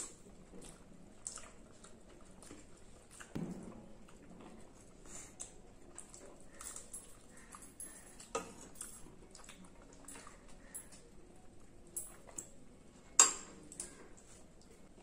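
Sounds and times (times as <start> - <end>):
chewing and mouth noises: 0.0 - 3.4, 4.0 - 15.0
spoon clicking on ceramic plates: 13.2 - 13.6.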